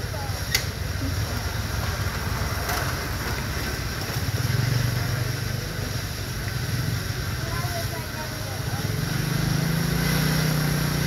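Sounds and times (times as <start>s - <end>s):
traffic engine rumble: 0.0s - 11.0s
vehicle passing: 6.7s - 11.0s.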